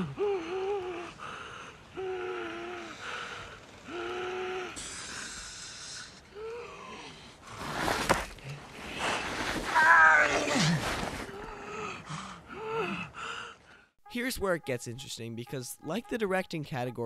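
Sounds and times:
man moaning in pain: 0.0s - 1.2s, 1.9s - 3.1s, 3.9s - 5.4s, 6.3s - 7.1s.

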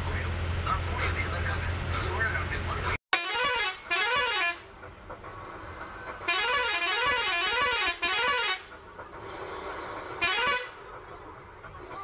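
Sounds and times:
engine and road rumble: 0.0s - 12.0s
warbling bus horn: 3.1s - 4.7s, 6.2s - 8.8s, 10.2s - 10.9s.

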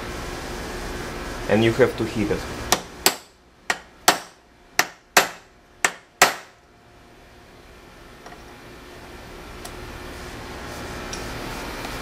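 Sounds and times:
mallet striking metal: 2.7s - 6.6s.

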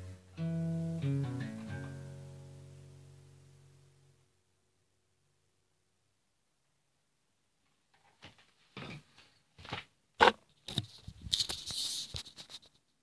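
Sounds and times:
rustling and scraping: 7.9s - 13.0s.

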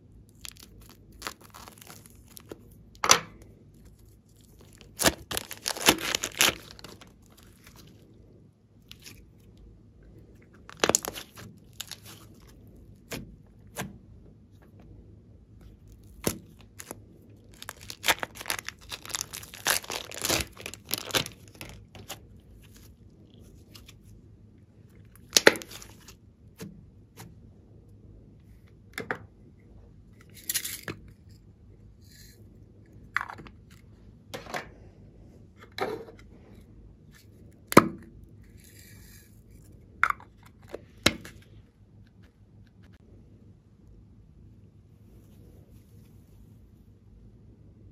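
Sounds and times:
plastic piping bag crinkling: 0.3s - 3.0s, 3.7s - 8.2s, 8.8s - 9.6s, 10.4s - 13.8s, 15.6s - 24.1s, 24.9s - 26.2s.

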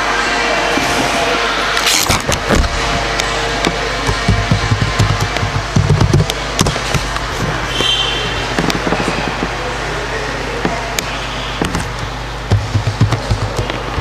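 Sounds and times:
sharp clicks and knocks: 1.9s - 7.9s, 8.5s - 9.6s, 10.6s - 14.0s
low rhythmic thumps: 2.3s - 7.6s, 10.6s - 14.0s.

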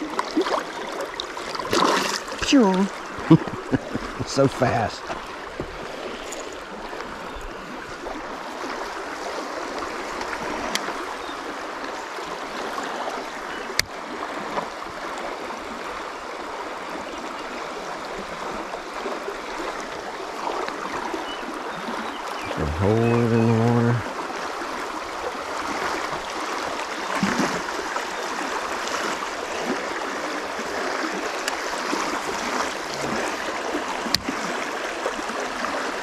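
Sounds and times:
river current rushing: 0.0s - 36.0s.

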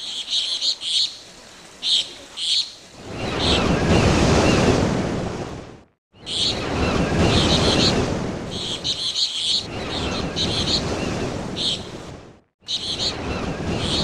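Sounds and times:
small birds chirping: 0.0s - 3.7s, 6.2s - 11.9s, 12.6s - 14.0s
wave washing in: 1.3s - 14.0s.

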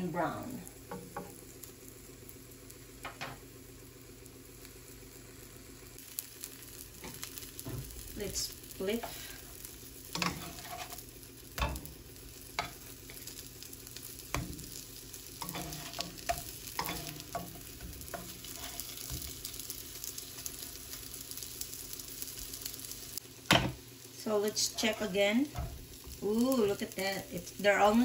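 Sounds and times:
burger patties sizzling in pan: 0.0s - 28.0s
spatula scraping and tapping pan: 10.2s - 11.0s, 11.6s - 12.0s, 12.6s - 13.3s, 15.4s - 19.4s.

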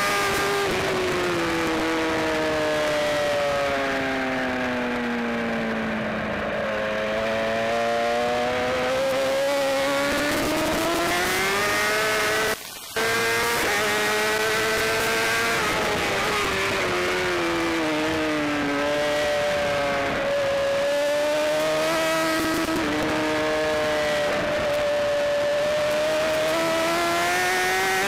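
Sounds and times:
motorcycle engine at racing speed: 0.0s - 28.0s.

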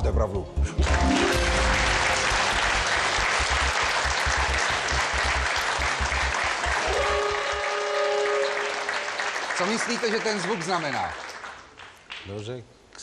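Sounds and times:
held electronic chord: 0.6s - 6.9s
audience applauding: 0.7s - 12.3s.

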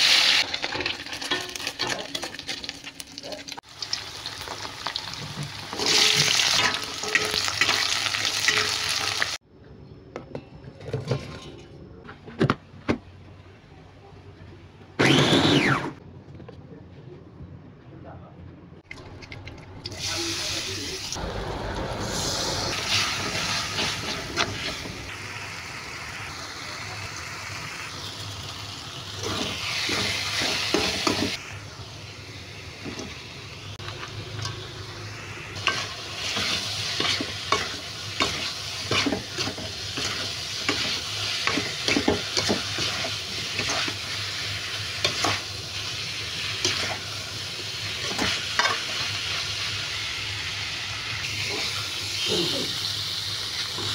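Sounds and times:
vegetables sizzling in hot oil: 0.0s - 9.4s, 19.9s - 53.9s
spatula scraping a wok: 5.7s - 9.0s, 35.6s - 47.2s.

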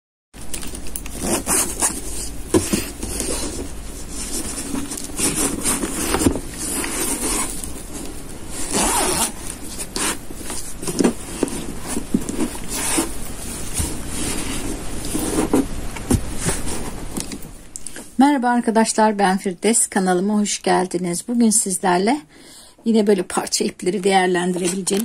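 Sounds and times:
fabric and zipper rustling: 0.6s - 17.5s.

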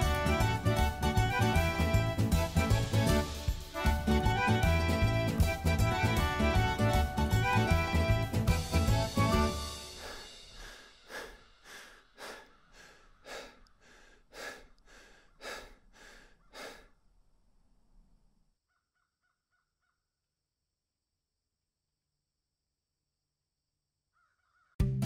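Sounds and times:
crow cawing: 12.3s - 14.0s, 24.1s - 24.8s.

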